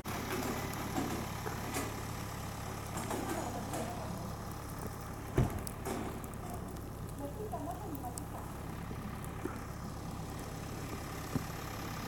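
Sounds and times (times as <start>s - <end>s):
vehicle engine idling: 0.0s - 12.0s
dull thump: 5.3s - 6.0s.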